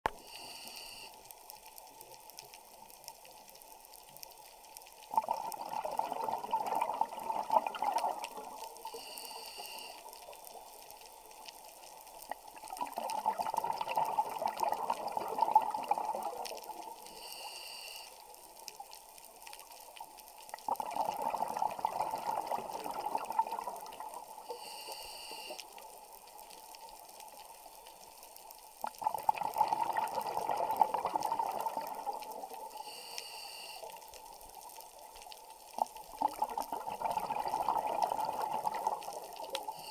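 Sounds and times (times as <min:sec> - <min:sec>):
regulator inhale hiss: 0:00.1 - 0:01.4, 0:08.8 - 0:10.4, 0:17.0 - 0:18.4, 0:24.4 - 0:25.9, 0:32.6 - 0:34.2, 0:39.5 - 0:39.9
exhaled bubbles rushing: 0:05.1 - 0:08.6, 0:12.5 - 0:16.8, 0:20.6 - 0:24.2, 0:28.9 - 0:32.4, 0:36.1 - 0:39.5.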